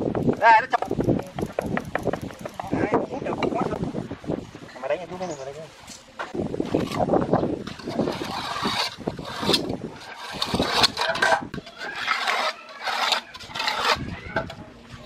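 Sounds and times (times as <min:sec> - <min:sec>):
trowel scraping concrete: 0:06.8 - 0:14.7.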